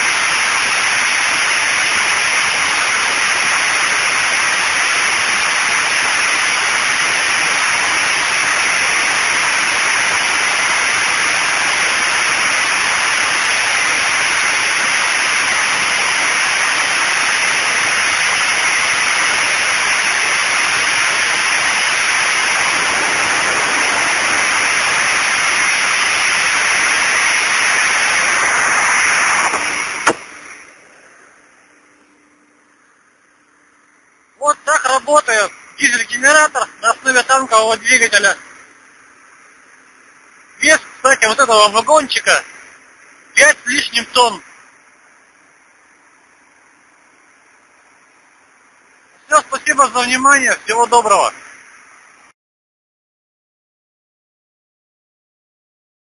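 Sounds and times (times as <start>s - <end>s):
diesel generator running: 0.0s - 44.8s
faint low hum: 26.4s - 52.3s.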